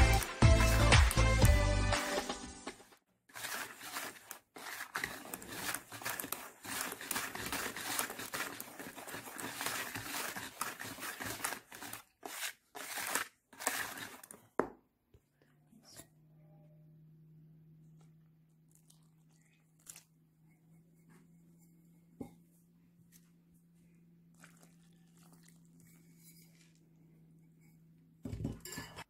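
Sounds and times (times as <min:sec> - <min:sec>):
whisk stirring flour: 0:03.3 - 0:14.4.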